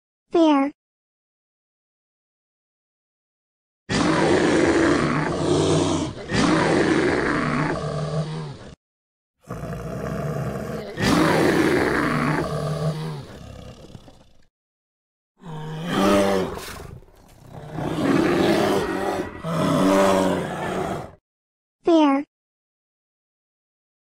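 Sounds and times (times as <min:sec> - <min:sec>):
bear roaring and growling: 0:03.9 - 0:08.8, 0:09.4 - 0:14.5, 0:15.4 - 0:21.2.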